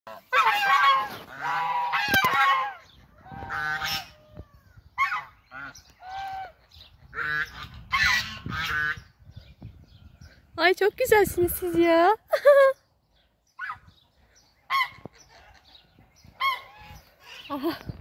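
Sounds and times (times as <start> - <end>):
geese honking: 0.1 - 4.3, 5.0 - 9.1.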